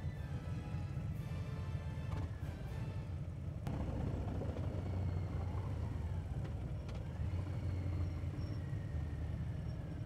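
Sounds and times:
motorcycle engines droning: 3.6s - 10.0s.

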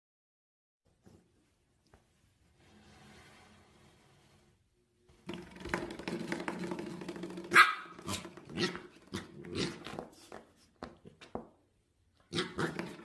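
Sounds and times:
puppy growling: 7.4s - 10.1s, 12.2s - 13.0s
puppy barking: 7.5s - 8.8s.

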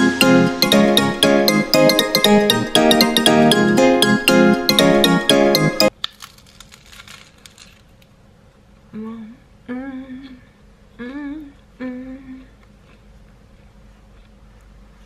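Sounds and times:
woman humming: 8.9s - 12.6s.

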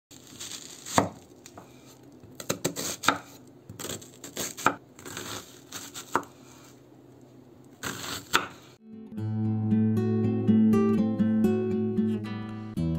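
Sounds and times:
knife crunching through onion: 0.1s - 6.8s, 7.7s - 8.8s.

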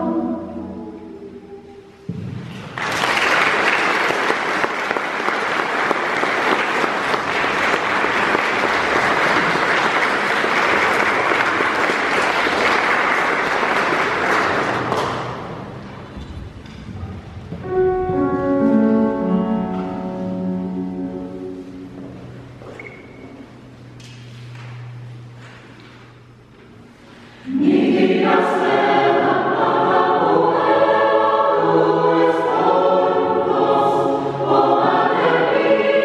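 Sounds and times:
electric keyboard sustained notes: 0.0s - 2.1s, 16.9s - 26.6s, 27.4s - 36.0s
audience applauding: 2.7s - 15.5s.

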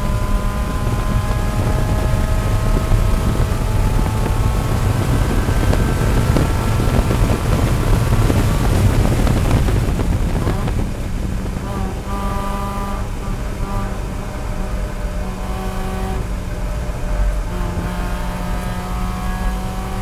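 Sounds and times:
race car engine at full throttle: 0.0s - 20.0s
road and wind noise: 0.0s - 20.0s.

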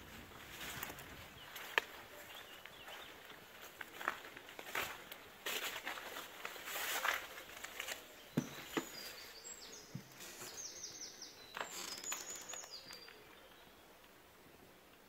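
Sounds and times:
footsteps crunching on rubble: 0.1s - 10.6s
bird chirping: 0.6s - 4.1s, 6.9s - 14.8s.

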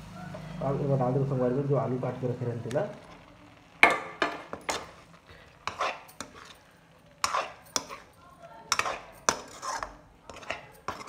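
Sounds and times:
spatula scraping a pan: 2.8s - 11.0s.

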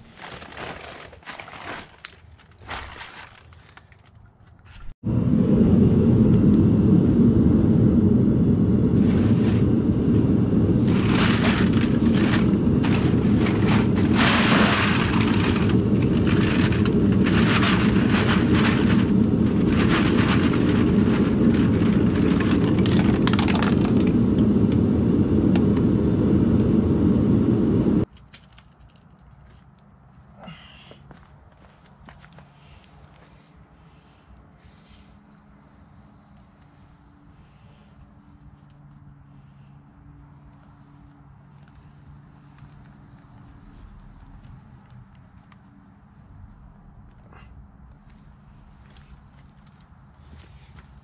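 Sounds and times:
steady low rumble: 5.0s - 28.1s, 41.3s - 51.0s.

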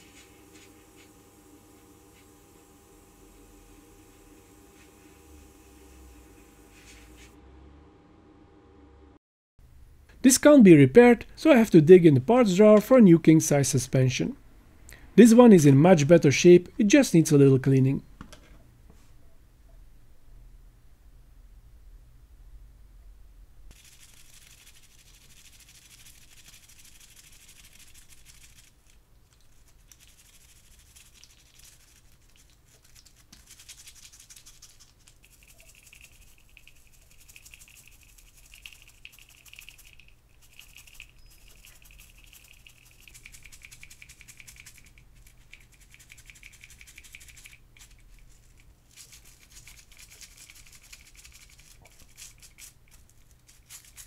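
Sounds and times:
cloth rubbing small parts: 0.0s - 1.2s, 6.6s - 7.4s, 23.7s - 54.0s.

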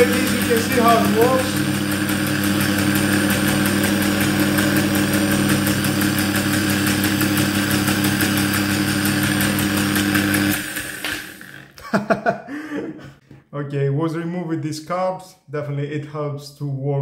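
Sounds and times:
jigsaw motor humming: 0.0s - 11.8s.

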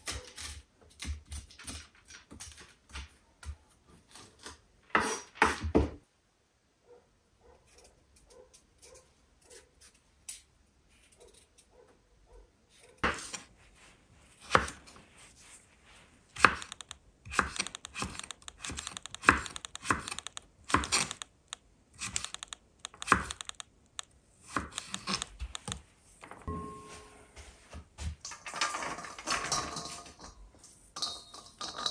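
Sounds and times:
kitchen knocks: 5.4s - 6.0s.

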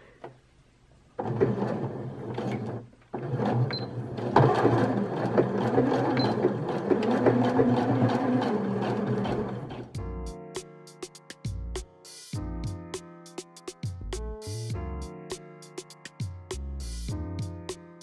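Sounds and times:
sewing machine stitching: 1.2s - 10.0s.

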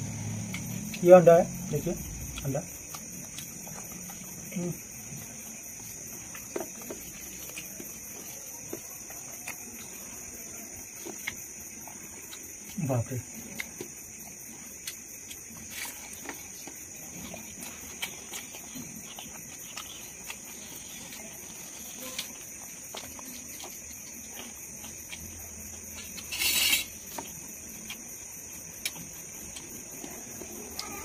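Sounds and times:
insect chorus: 0.0s - 31.0s
person chewing food: 2.0s - 31.0s.

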